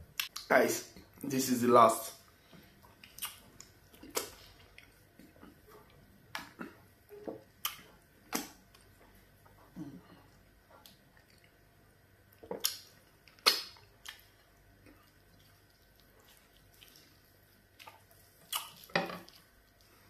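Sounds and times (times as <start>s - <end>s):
wet lip smacks while chewing: 3.0s - 5.6s, 12.4s - 14.3s, 17.8s - 18.9s.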